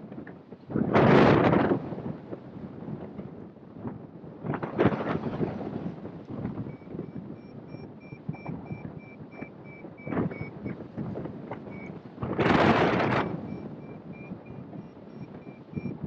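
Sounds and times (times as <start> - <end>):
wind buffeting microphone: 0.0 - 16.0
faint rapid beeps: 6.6 - 10.8, 11.5 - 12.0, 12.8 - 16.0.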